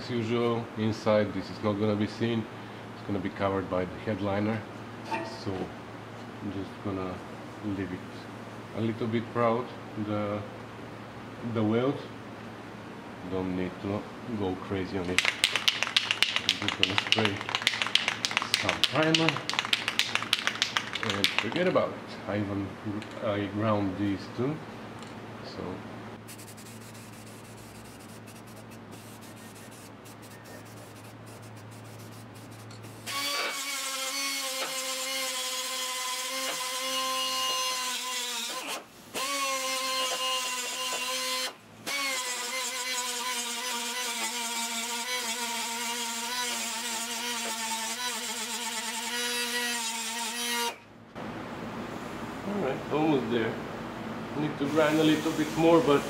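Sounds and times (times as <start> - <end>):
low steady hum: 0.0 - 33.1, 50.8 - 56.0
air cut-off tool whining: 32.8 - 50.8.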